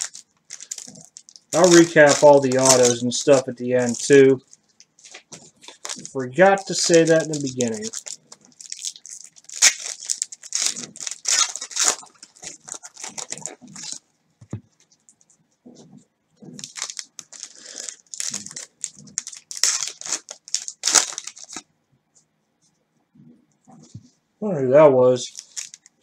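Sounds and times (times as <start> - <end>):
card pack wrappers tearing and crinkling: 0.0 - 14.0, 16.6 - 21.6, 25.3 - 26.0.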